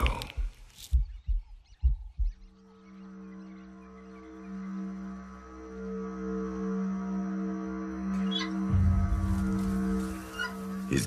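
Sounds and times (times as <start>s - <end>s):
deep muffled drum thumps: 0.4s - 2.6s, 8.7s - 10.0s.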